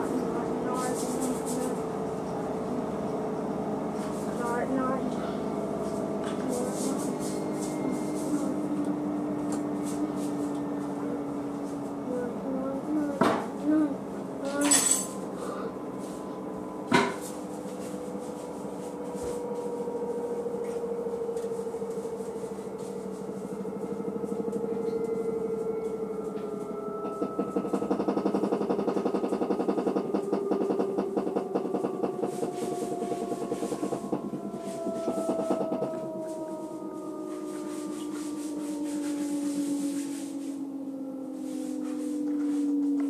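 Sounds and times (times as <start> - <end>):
washing machine motor whine: 0.0 - 43.0
fast rhythmic rubbing: 27.2 - 35.9.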